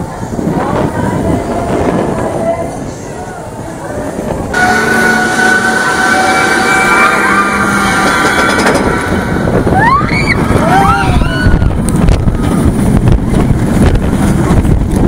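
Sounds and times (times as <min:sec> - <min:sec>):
lift hill whine: 0:00.0 - 0:15.0
roller coaster train rattling: 0:00.0 - 0:15.0
wind rushing over microphone: 0:00.0 - 0:15.0
riders screaming: 0:09.7 - 0:11.8.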